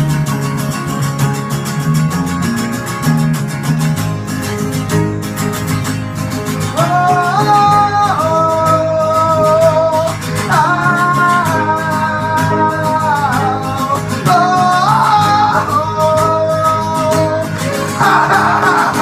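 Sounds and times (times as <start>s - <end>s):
strummed guitars: 0.0s - 19.0s
person singing long notes: 6.8s - 19.0s.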